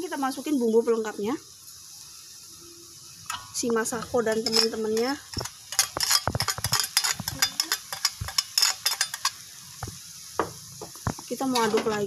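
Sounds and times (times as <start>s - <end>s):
faint sizzle: 0.0s - 12.0s
clinks and scrapes of glass bowl: 4.3s - 9.4s.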